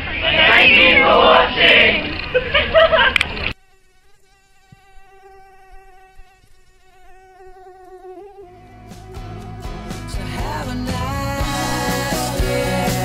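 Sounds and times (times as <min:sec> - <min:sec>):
mosquito whining: 0:03.5 - 0:10.2
music: 0:08.5 - 0:13.0.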